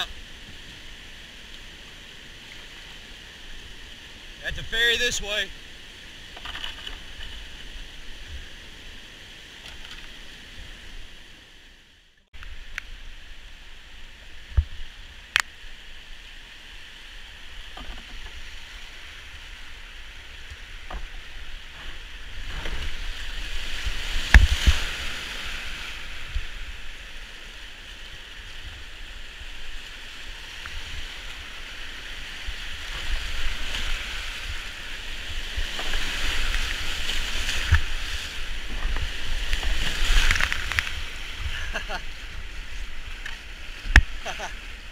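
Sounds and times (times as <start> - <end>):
whitewater rushing: 0.0 - 6.4, 12.4 - 44.9
paddle strokes in water: 17.4 - 44.9.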